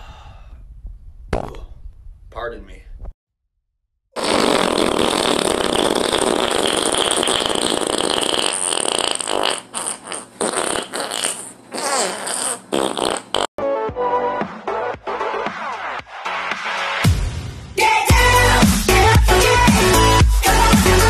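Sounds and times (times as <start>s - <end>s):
long raspy fart: 4.2s - 13.5s.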